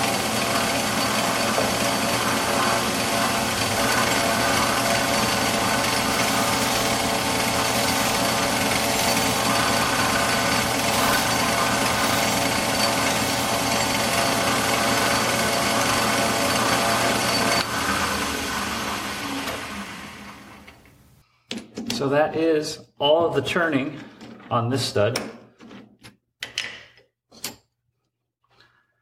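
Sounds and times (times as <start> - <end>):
file rasping on steel: 0.0 - 17.7
lathe spinning down: 0.0 - 20.9
lathe motor whining: 0.0 - 21.0.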